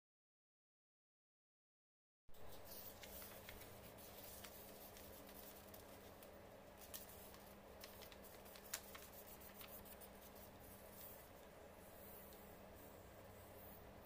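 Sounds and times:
low steady hum: 0:02.3 - 0:14.0
paper rustling and crinkling: 0:02.4 - 0:11.5.

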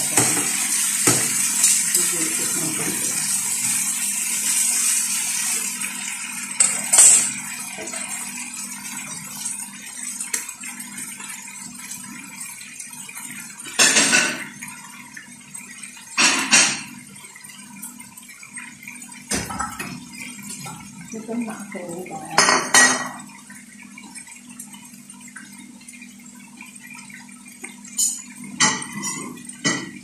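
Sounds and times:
chicken sizzling in a pan: 0:00.0 - 0:17.2.

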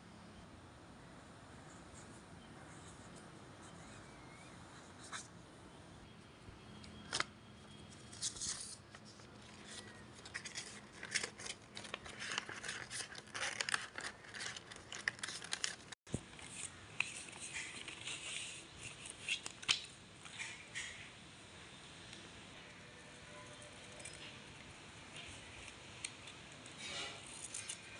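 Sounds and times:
paper and card rustling: 0:07.9 - 0:19.8.

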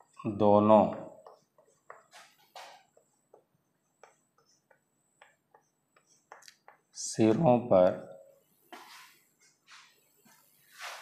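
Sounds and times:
chalk tapping and scratching on blackboard: 0:00.0 - 0:07.4, 0:08.7 - 0:11.0.

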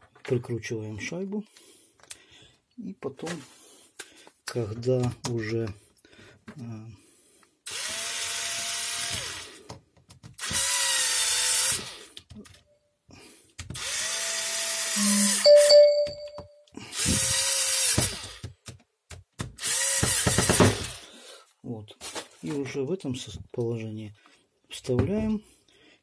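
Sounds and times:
cordless drill whining: 0:07.7 - 0:09.6, 0:10.4 - 0:12.1, 0:13.8 - 0:15.8, 0:16.8 - 0:18.4, 0:19.6 - 0:21.0
brief ringing tone: 0:15.4 - 0:16.6.

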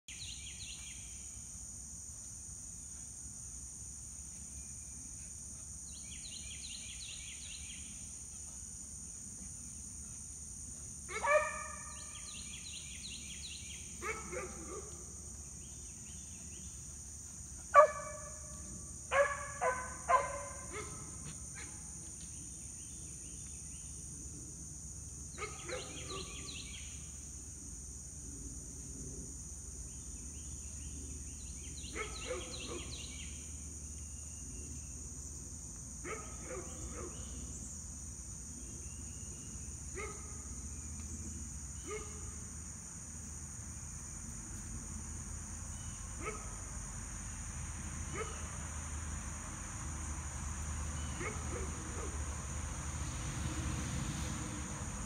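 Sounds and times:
high insect drone: 0:00.1 - 0:55.0
dog barking: 0:11.1 - 0:11.8, 0:14.0 - 0:15.0, 0:17.8 - 0:18.3, 0:19.1 - 0:21.8, 0:25.4 - 0:26.4, 0:31.9 - 0:33.0, 0:36.0 - 0:37.3, 0:40.0 - 0:40.4, 0:41.9 - 0:42.3, 0:46.2 - 0:46.6, 0:48.1 - 0:48.4, 0:51.2 - 0:52.2.

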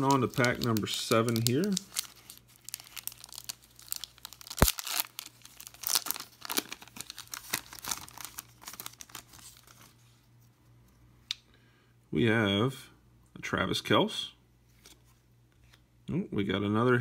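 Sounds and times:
foil wrapper crinkling: 0:00.0 - 0:10.0.

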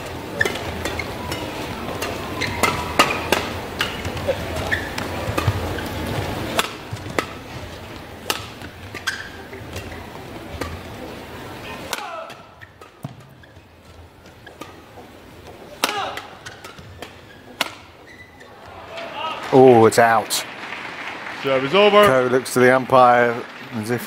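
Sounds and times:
racket striking shuttlecock: 0:00.0 - 0:18.7
shoes squeaking on court floor: 0:00.0 - 0:19.4.

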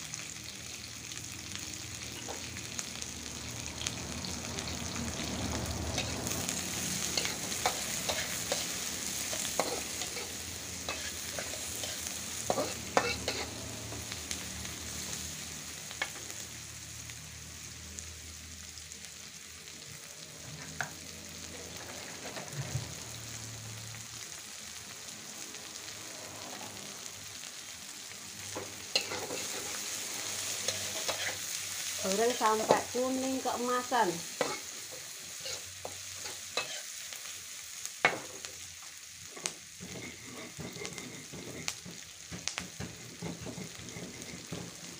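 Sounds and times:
onions sizzling in oil: 0:00.0 - 0:44.9
metal spatula scraping a wok: 0:05.9 - 0:14.1, 0:21.5 - 0:22.8, 0:28.5 - 0:33.5, 0:34.3 - 0:37.1, 0:39.3 - 0:42.0, 0:42.8 - 0:44.9.

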